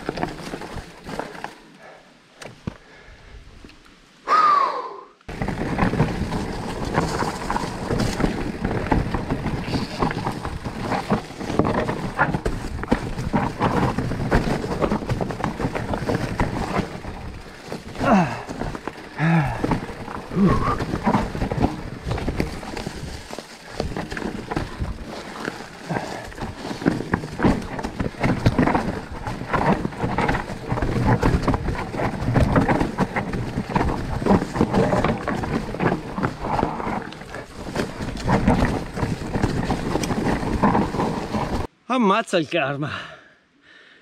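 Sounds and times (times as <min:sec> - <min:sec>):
bike rattling and knocking: 0:00.0 - 0:01.6, 0:05.3 - 0:41.7
tyres crunching over stones: 0:00.0 - 0:01.8, 0:05.3 - 0:41.7.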